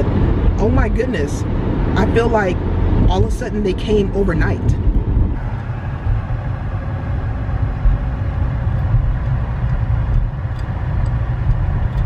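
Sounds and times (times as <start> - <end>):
car engine rumble: 0.0 - 12.0
road noise inside car: 0.0 - 12.0.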